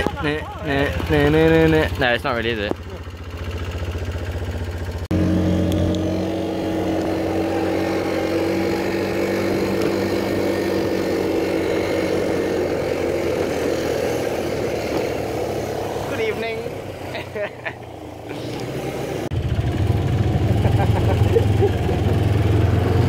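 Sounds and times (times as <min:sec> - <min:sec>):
quad bike engine running: 0:00.0 - 0:23.0
wind and road rushing: 0:05.0 - 0:20.4.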